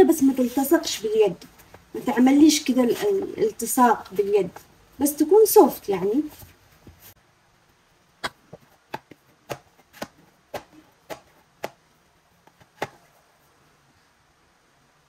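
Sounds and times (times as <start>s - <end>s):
dough slapped down thumps: 8.2s - 11.8s, 12.4s - 13.0s.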